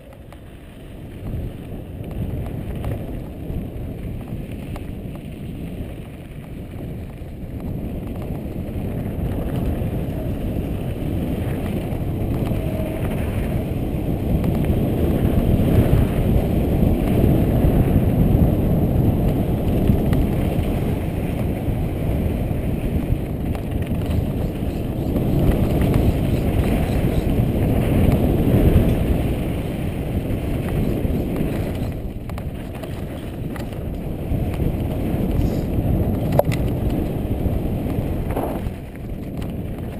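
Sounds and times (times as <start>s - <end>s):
bike tyres rolling on dirt: 0.0s - 39.9s
wind on microphone: 0.0s - 39.9s.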